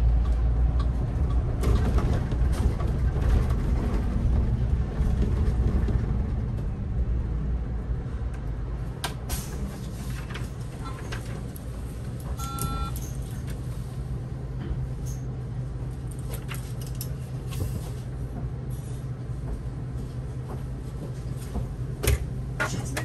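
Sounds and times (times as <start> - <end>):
bus engine running: 0.0 - 23.0
short electronic beep: 12.4 - 13.0.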